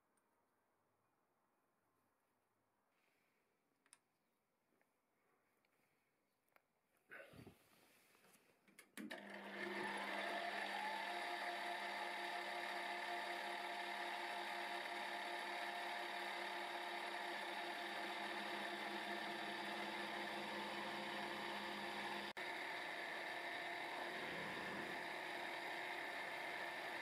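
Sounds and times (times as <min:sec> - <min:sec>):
milling machine motor whine: 0:09.1 - 0:27.0.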